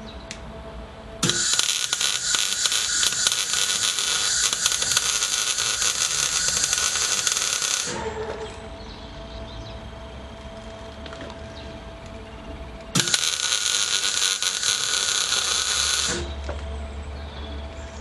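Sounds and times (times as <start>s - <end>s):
welder arc crackling: 1.2s - 8.2s, 12.8s - 16.5s.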